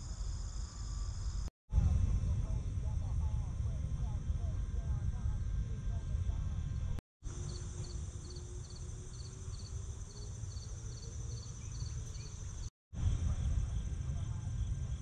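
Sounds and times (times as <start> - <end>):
insects chirping: 7.3 - 12.7.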